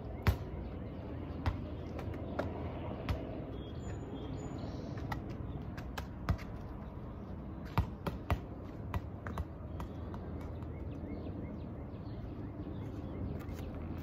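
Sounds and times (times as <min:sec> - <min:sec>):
ball bouncing on asphalt: 0:00.0 - 0:04.3, 0:04.9 - 0:11.7.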